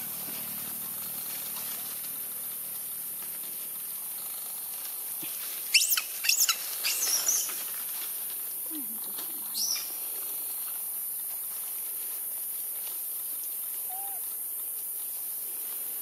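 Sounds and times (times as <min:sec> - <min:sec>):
monkeys squealing: 0:05.7 - 0:07.5, 0:13.8 - 0:14.2.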